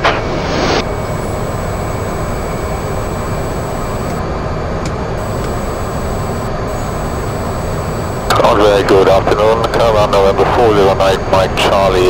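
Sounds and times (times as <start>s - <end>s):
faint high whine: 0.8s - 4.3s, 5.2s - 11.4s
turboprop engine running: 0.8s - 4.3s, 5.1s - 8.6s.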